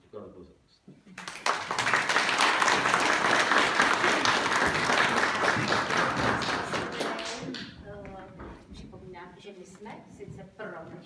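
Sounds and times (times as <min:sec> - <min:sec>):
audience applauding: 0:01.2 - 0:07.8.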